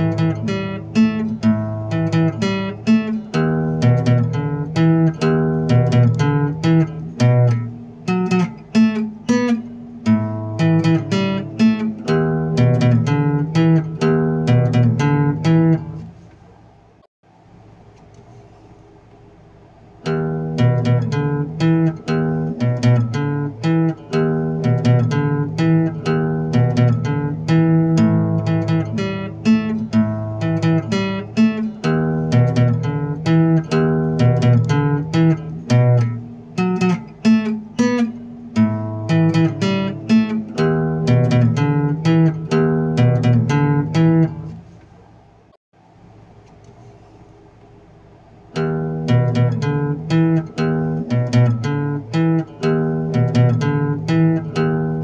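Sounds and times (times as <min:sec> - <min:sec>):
acoustic guitar playing: 0:00.0 - 0:16.6, 0:20.0 - 0:44.8, 0:48.4 - 0:55.0.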